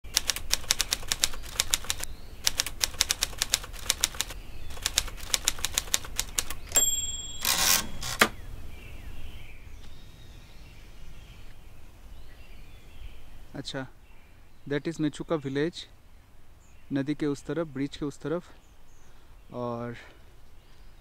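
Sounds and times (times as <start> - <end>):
typewriter keys clacking: 0.1 - 8.4
carriage return bell ding: 6.7 - 8.1
typewriter carriage sliding: 7.4 - 8.4.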